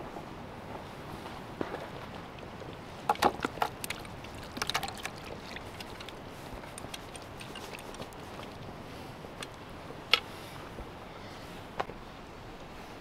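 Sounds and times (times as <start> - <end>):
stew plopping and sloshing: 2.1 - 8.6.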